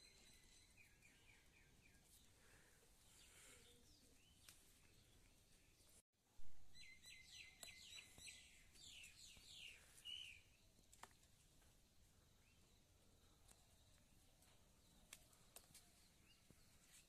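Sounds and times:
birds chirping: 0:00.0 - 0:06.0, 0:06.8 - 0:11.0.

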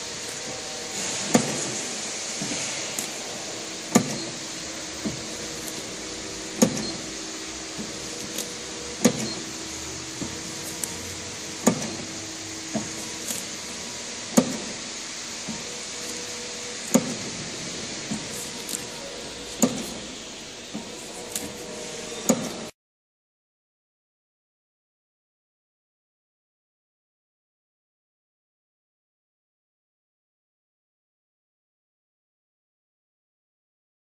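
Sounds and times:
low motor hum: 0:00.0 - 0:22.7
printer sharp clack: 0:00.0 - 0:22.7.

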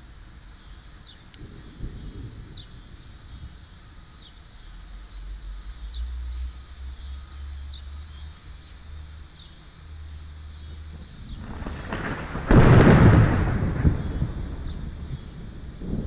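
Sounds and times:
bird chirping: 0:00.0 - 0:12.3
insects buzzing: 0:00.0 - 0:16.0
distant thunder rumbling: 0:01.4 - 0:04.3, 0:10.5 - 0:16.0.

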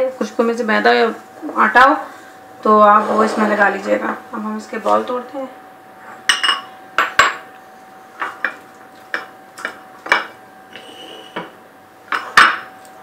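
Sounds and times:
faint steady hum: 0:00.0 - 0:13.0
glass bowls and spoon clinking: 0:06.2 - 0:07.4.

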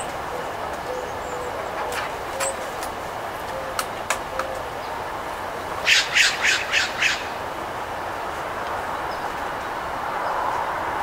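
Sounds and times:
outdoor background hiss: 0:00.0 - 0:11.0
bird squawking harshly: 0:05.8 - 0:07.3.

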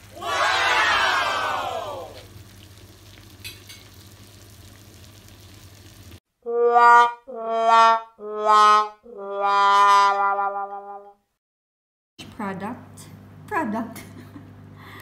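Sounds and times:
pan simmering with soft sizzle: 0:00.0 - 0:06.2.

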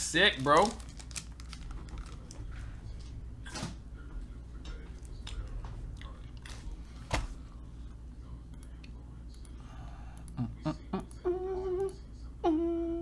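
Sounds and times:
steady low hum: 0:00.0 - 0:13.0
faint clicks and handling noises: 0:00.3 - 0:03.2.

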